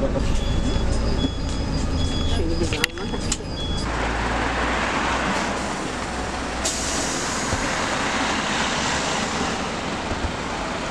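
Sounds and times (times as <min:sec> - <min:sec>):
minibus engine idling: 0:00.0 - 0:10.9
street noise: 0:00.0 - 0:10.9.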